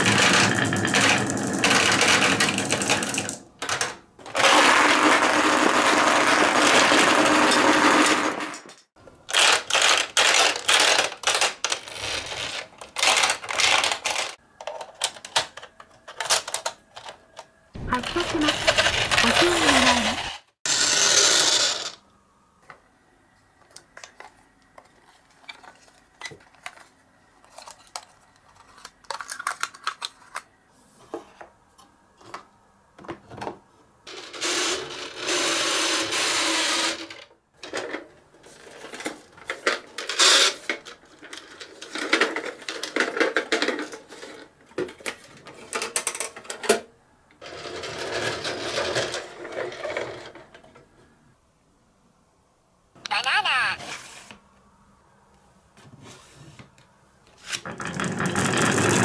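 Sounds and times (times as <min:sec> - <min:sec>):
marbles rolling on wooden tracks: 0:00.0 - 0:14.4, 0:17.8 - 0:22.0, 0:47.4 - 0:50.6, 0:57.6 - 0:59.0
marbles clattering into toy trucks: 0:00.0 - 0:17.2, 0:17.9 - 0:22.0, 0:34.1 - 0:50.6, 0:57.6 - 0:59.0.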